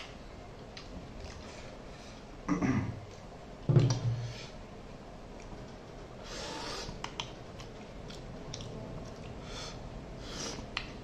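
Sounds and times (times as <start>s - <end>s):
person chewing: 6.8s - 9.6s.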